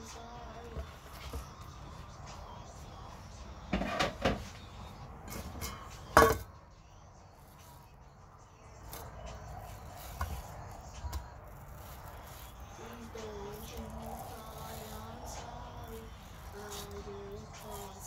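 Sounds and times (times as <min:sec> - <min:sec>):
knife scraping: 0:08.8 - 0:18.0.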